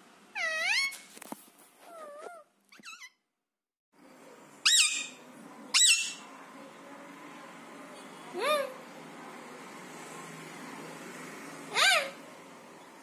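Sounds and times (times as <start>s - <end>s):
parakeets calling: 4.6s - 6.2s, 11.7s - 12.2s.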